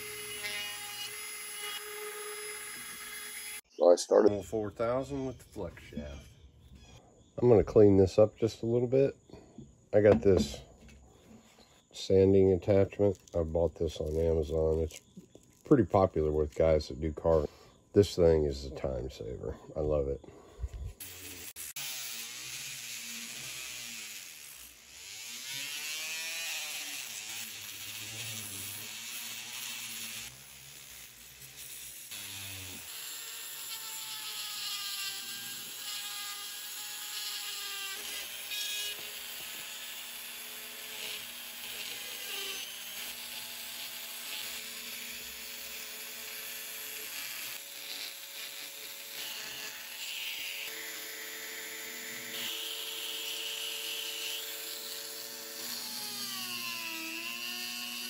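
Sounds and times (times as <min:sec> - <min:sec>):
rotary tool whining: 0:00.0 - 0:03.6, 0:20.6 - 0:58.0
gritty hiss of sanding wood: 0:20.9 - 0:32.8.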